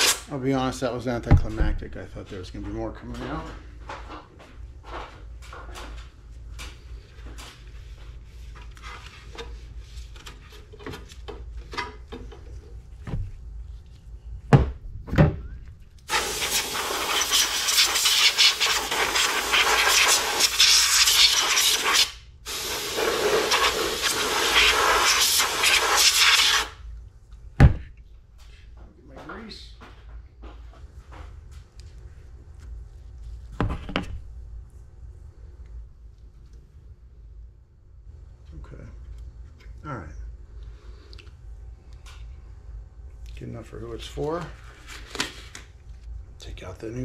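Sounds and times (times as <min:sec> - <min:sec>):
loud thumps: 0:27.6 - 0:27.9.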